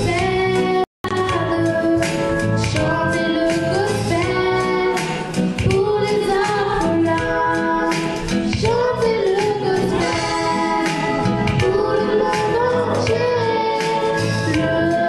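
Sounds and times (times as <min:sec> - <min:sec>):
girl singing gospel song: 0:00.0 - 0:15.0
musical accompaniment: 0:00.0 - 0:15.0
children's choir singing: 0:01.8 - 0:15.0.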